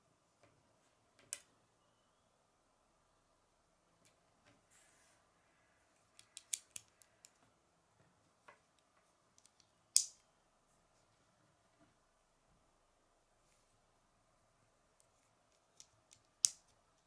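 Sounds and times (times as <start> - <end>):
lego piece snapping: 6.2 - 7.1, 9.4 - 10.2, 15.5 - 16.7.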